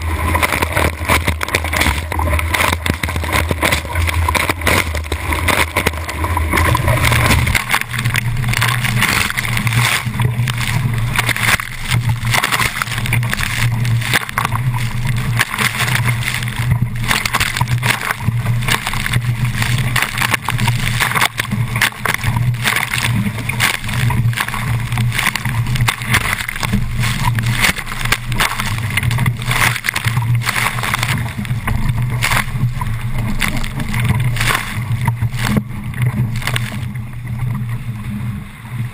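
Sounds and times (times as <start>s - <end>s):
water rushing past hull: 0.0s - 38.9s.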